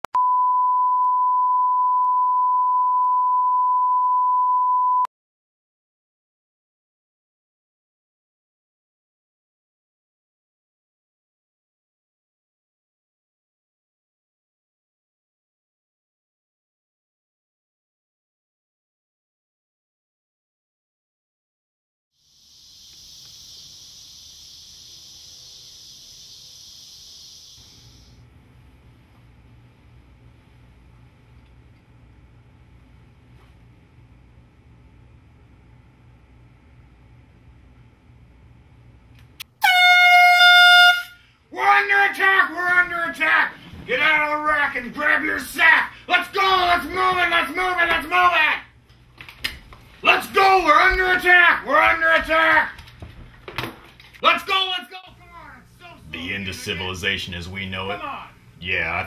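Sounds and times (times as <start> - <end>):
steady test tone beep: 0.2 - 5.1
high-pitched insect chorus: 22.2 - 28.2.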